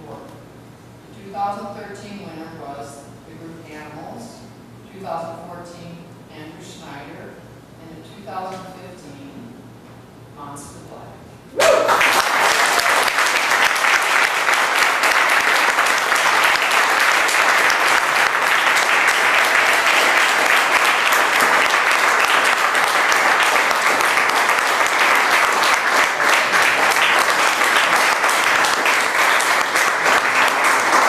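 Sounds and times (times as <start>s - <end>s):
audience applauding: 11.6s - 31.0s.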